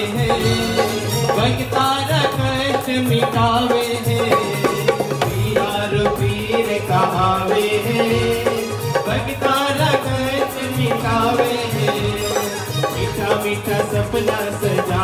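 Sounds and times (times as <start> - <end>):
devotional melody: 0.0 - 15.0
hand drum rhythm: 0.0 - 15.0.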